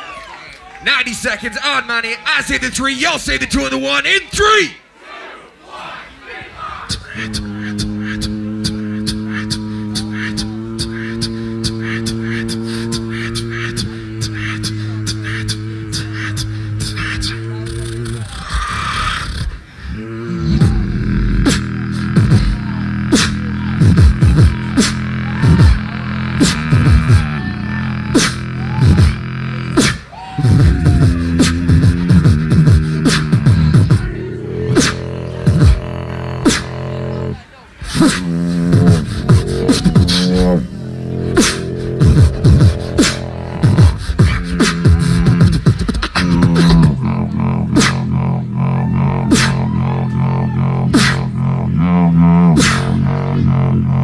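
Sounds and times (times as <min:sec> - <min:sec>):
mouth percussion: 0:06.8 - 0:54.0
beatboxed kick drums: 0:06.9 - 0:37.1, 0:37.8 - 0:54.0
hummed bass tone: 0:07.0 - 0:18.6, 0:19.9 - 0:37.4, 0:38.1 - 0:54.0
beatboxed snare hits: 0:21.4 - 0:27.3, 0:28.2 - 0:34.1, 0:34.7 - 0:37.0, 0:37.8 - 0:40.6, 0:41.3 - 0:48.3, 0:49.3 - 0:49.7, 0:50.9 - 0:51.4, 0:52.4 - 0:53.2.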